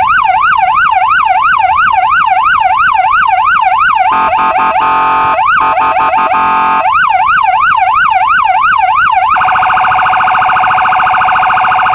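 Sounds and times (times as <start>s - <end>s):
police siren yelp and warble: 0.0s - 11.9s.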